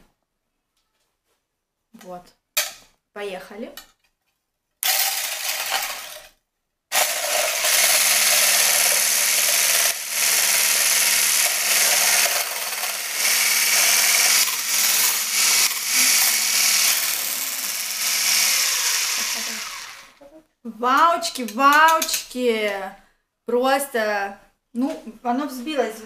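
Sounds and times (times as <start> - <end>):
hand blender motor humming: 6.9 - 20.2.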